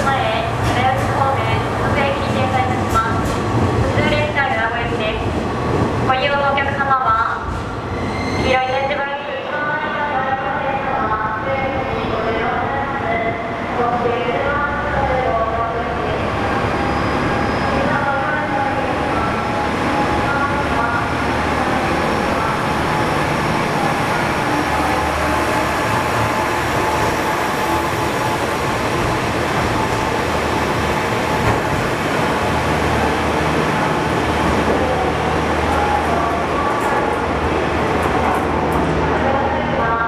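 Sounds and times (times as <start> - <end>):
train noise: 0.0 - 40.0
diesel railcar engine rumbling: 10.0 - 40.0.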